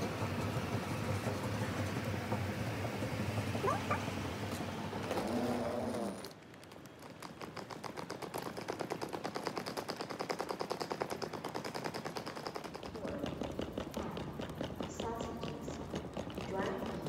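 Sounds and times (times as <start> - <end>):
moving walkway running: 0.0 - 17.0
rapid even clicking: 5.1 - 17.0.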